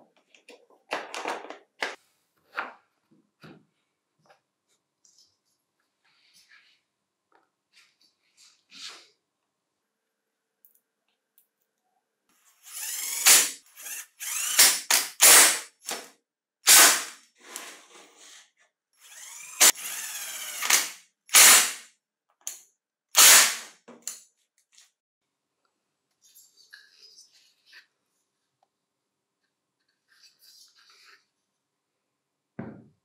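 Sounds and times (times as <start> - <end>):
power driver driving screws: 12.6 - 16.1, 16.7 - 17.2, 19.0 - 21.8, 23.2 - 23.7.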